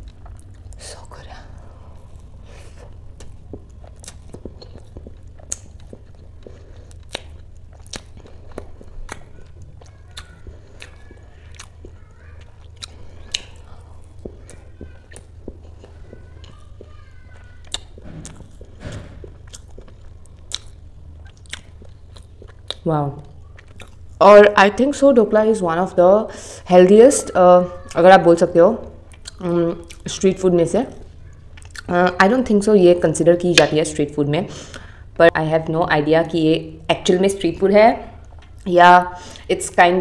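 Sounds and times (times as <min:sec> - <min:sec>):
chewing with wet mouth clicks: 0:00.0 - 0:00.8, 0:01.5 - 0:24.2, 0:28.8 - 0:30.1, 0:30.9 - 0:31.9, 0:38.2 - 0:38.7
steady low hum: 0:00.0 - 0:40.0.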